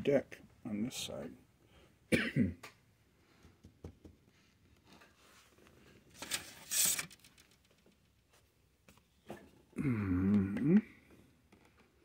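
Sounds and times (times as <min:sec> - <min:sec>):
rustling scrape: 0:04.9 - 0:07.6.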